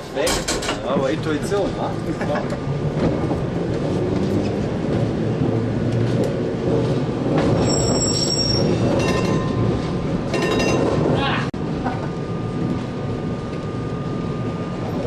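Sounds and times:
tram wheels and motor rumbling: 0.0s - 15.0s
wheels squealing on rails: 3.8s - 11.2s.

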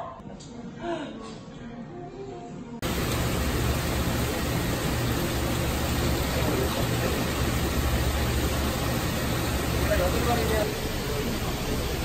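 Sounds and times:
machinery hum: 2.8s - 12.0s
water circulating in fish tanks: 2.8s - 12.0s.

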